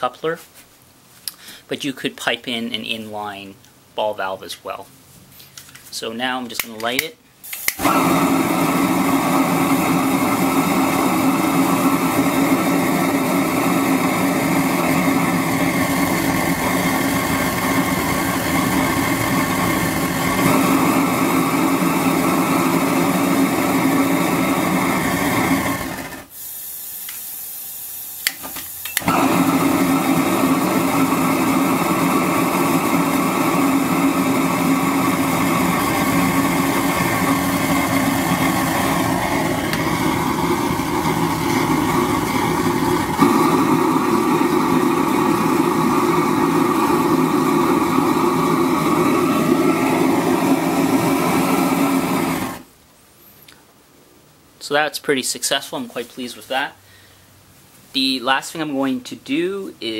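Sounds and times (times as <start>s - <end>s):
propane burner flame rushing: 7.4s - 26.8s, 28.2s - 52.7s.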